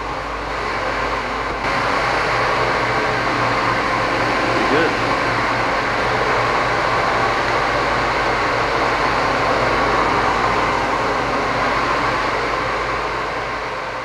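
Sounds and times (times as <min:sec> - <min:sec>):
large cooling fan rushing: 0:00.0 - 0:14.0
low hum: 0:00.0 - 0:14.0.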